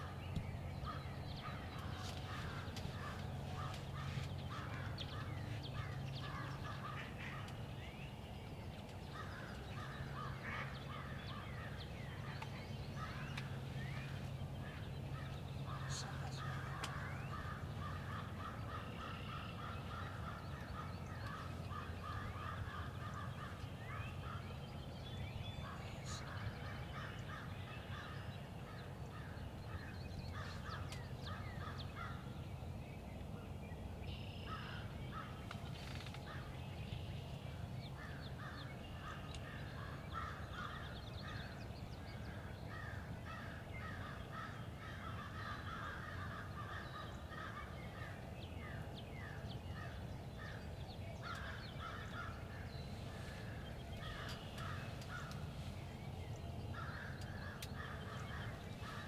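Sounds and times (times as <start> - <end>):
low steady rumble: 0.0 - 59.0
birds making harsh calls: 8.8 - 24.9, 37.9 - 59.0.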